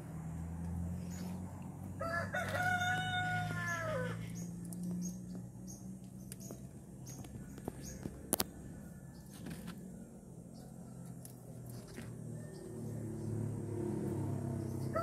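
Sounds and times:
rooster crowing: 0:01.9 - 0:04.4, 0:14.8 - 0:15.0.

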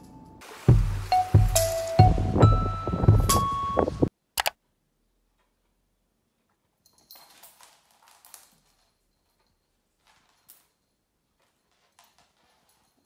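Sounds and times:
background music: 0:00.0 - 0:04.1
soft rustling: 0:05.3 - 0:13.0.

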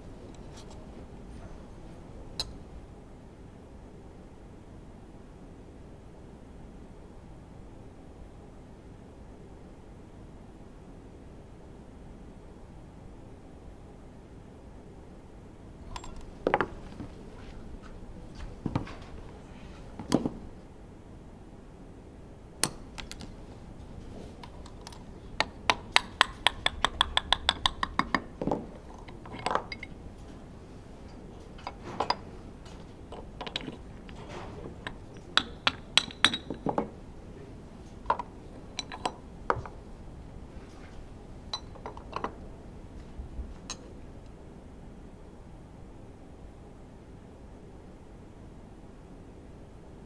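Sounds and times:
metal parts clinking on workbench: 0:28.8 - 0:30.0, 0:38.1 - 0:39.2
ringing metal clicks: 0:28.9 - 0:30.0.

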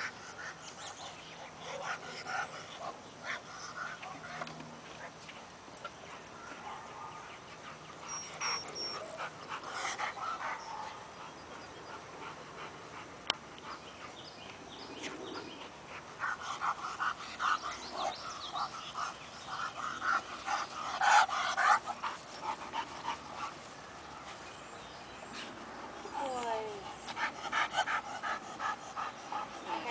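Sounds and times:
dog whining and yipping: 0:08.1 - 0:09.2.

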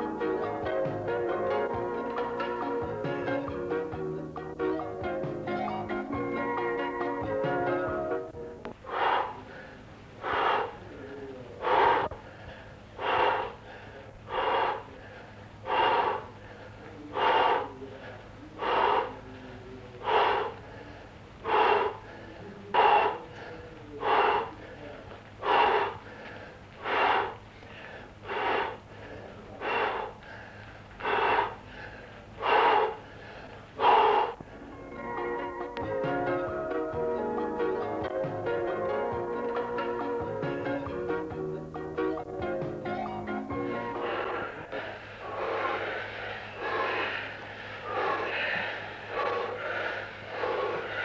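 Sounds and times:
person breathing heavily: 0:08.7 - 0:37.5, 0:43.6 - 0:51.0.

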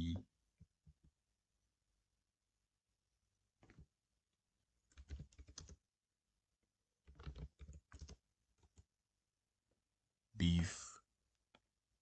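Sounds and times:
computer keyboard typing: 0:04.8 - 0:05.8, 0:07.0 - 0:08.9.

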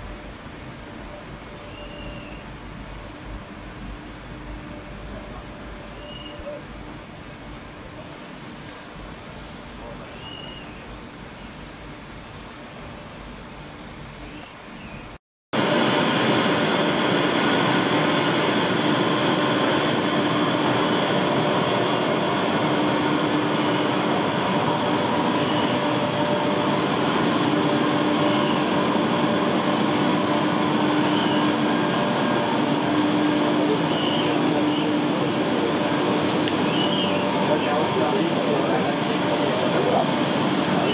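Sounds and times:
printing press whirring: 0:15.6 - 0:40.9.

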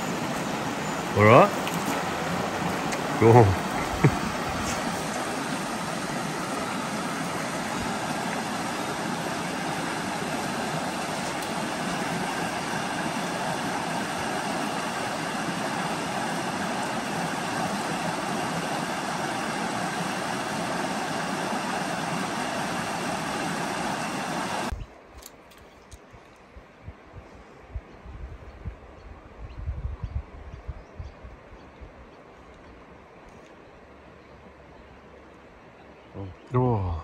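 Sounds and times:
creek water rushing: 0:00.0 - 0:24.7.

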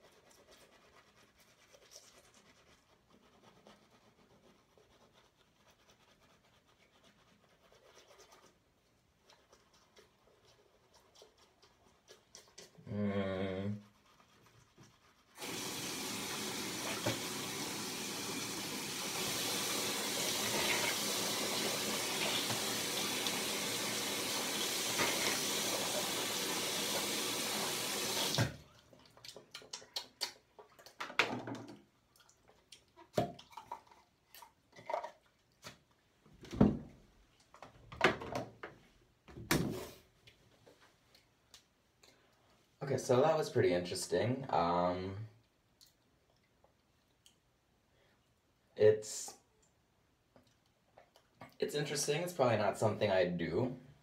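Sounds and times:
toothbrush scrubbing: 0:00.0 - 0:12.9, 0:13.8 - 0:31.0
throaty vocal sound: 0:12.8 - 0:13.8
faucet running into sink: 0:15.4 - 0:28.6.

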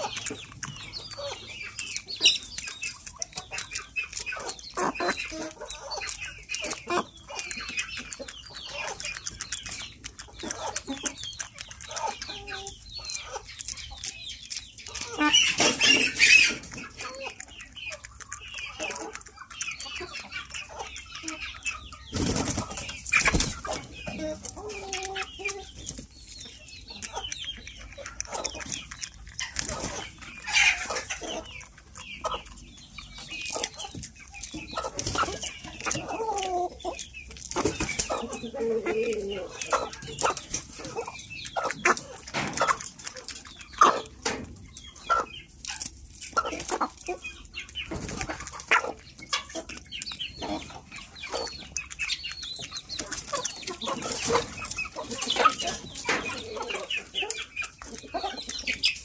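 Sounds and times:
pecking clicks: 0:00.0 - 0:15.6
chickens clucking: 0:00.0 - 0:59.0.

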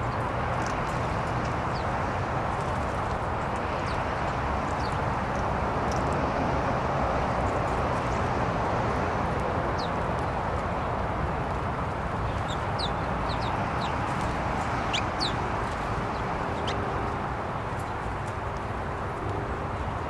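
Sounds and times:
songbirds chirping: 0:00.0 - 0:05.5, 0:09.6 - 0:10.3, 0:11.7 - 0:18.7.

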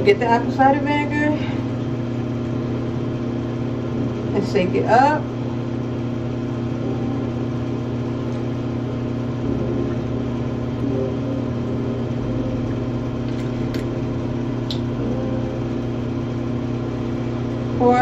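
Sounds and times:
low motor hum: 0:00.0 - 0:18.0
even tones: 0:06.8 - 0:18.0.

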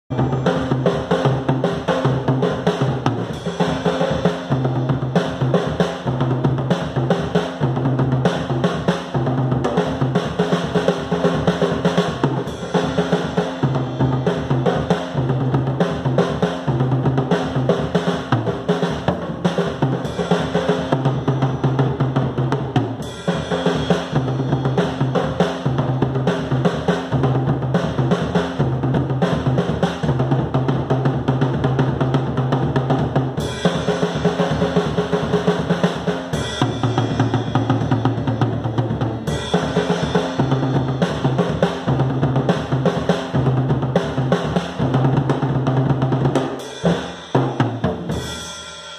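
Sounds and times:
acoustic drum kit playing: 0:00.1 - 0:48.9.

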